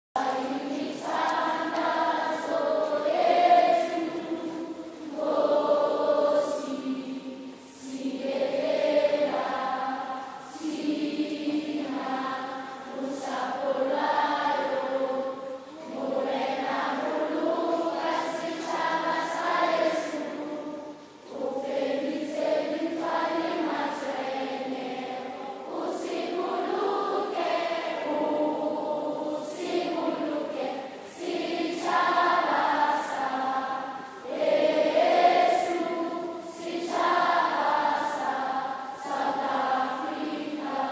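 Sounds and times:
children singing an anthem: 0:00.2 - 0:40.9.

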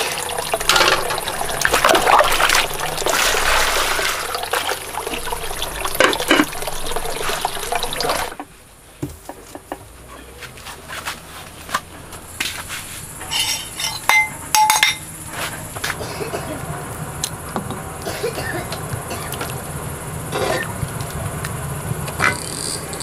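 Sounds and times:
water running: 0:00.0 - 0:08.5.

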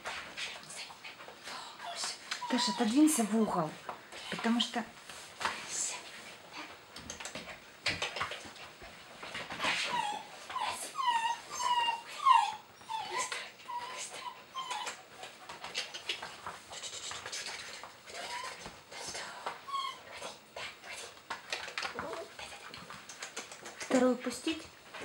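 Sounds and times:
dog whining: 0:01.8 - 0:03.1, 0:09.8 - 0:15.0, 0:18.1 - 0:18.7, 0:19.7 - 0:20.1.

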